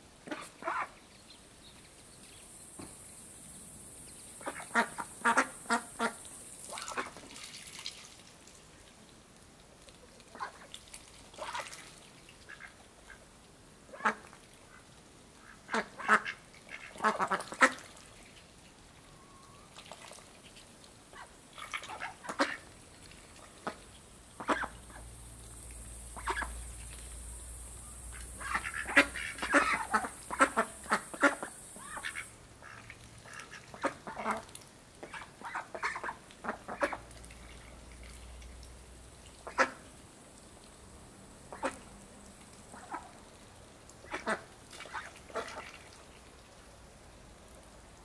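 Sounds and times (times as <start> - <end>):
ducks quacking: 0.3 - 1.0, 4.4 - 7.2, 15.4 - 18.0, 21.1 - 22.7, 24.4 - 25.1, 26.2 - 26.9, 28.1 - 37.7, 39.4 - 39.8, 41.5 - 41.9, 44.0 - 45.8.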